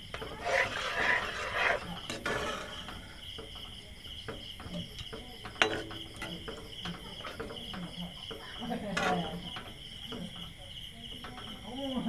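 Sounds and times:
spatula scraping metal pan: 0:00.0 - 0:03.2, 0:04.6 - 0:07.7, 0:08.7 - 0:09.8
liquid sloshing in a pan: 0:00.0 - 0:10.3.

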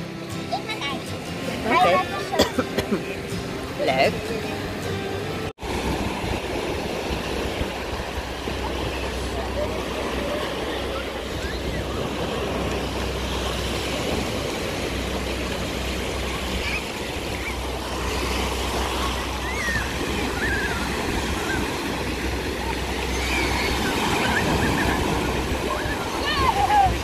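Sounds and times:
small waves breaking on sand: 0:00.0 - 0:27.0
faint distant voices: 0:07.7 - 0:14.2.

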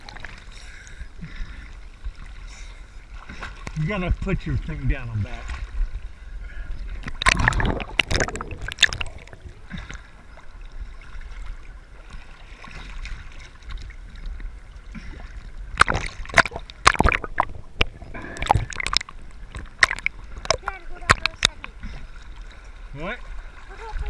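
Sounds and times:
sea water splashing and sloshing: 0:00.0 - 0:24.0
muffled underwater gurgling: 0:06.3 - 0:10.4, 0:14.9 - 0:21.9.

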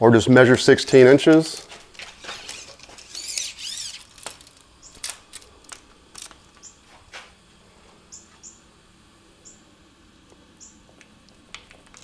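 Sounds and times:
tape measure sliding: 0:01.3 - 0:06.4
pencil squeaking on wall: 0:02.2 - 0:04.1.

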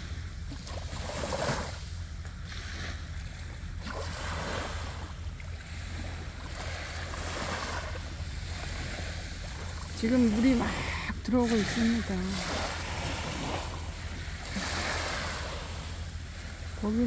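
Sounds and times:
small waves washing onto beach: 0:00.0 - 0:17.0
wind rumble on microphone: 0:00.0 - 0:17.0.

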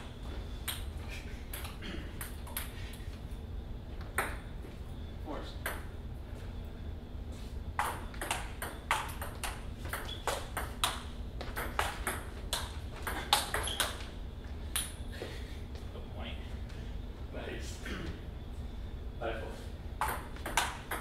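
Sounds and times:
ping-pong ball clicking: 0:07.8 - 0:11.0, 0:20.0 - 0:21.0.

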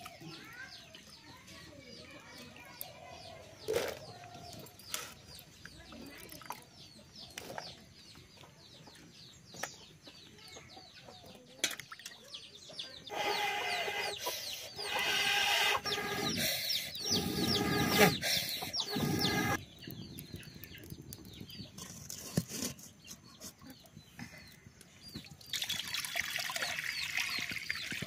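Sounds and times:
small birds chirping: 0:00.0 - 0:28.0
hens clucking: 0:12.7 - 0:19.6
air blown through blowpipe: 0:13.1 - 0:19.6.

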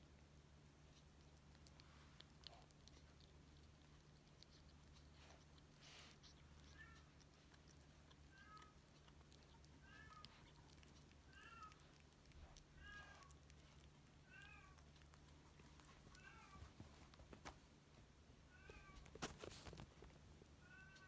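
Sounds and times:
kitten mewing: 0:05.5 - 0:15.2.

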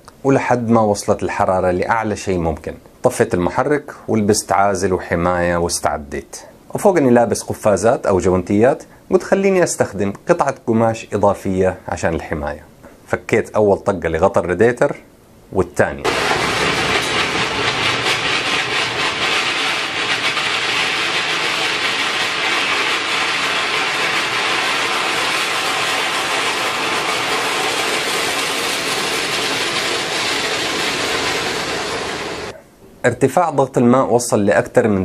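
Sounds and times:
steam hissing from radiator: 0:16.1 - 0:32.6.

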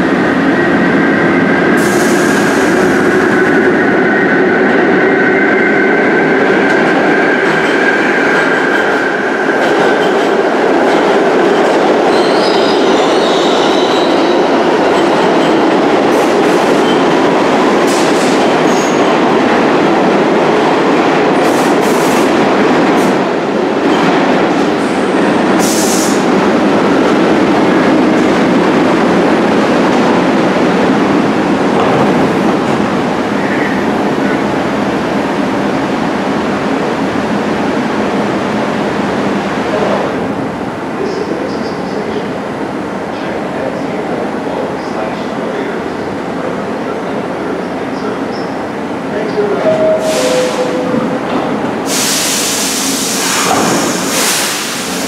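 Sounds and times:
subway train wheels rumbling: 0:00.0 - 0:55.0
sharp clicks and hisses: 0:51.9 - 0:55.0.

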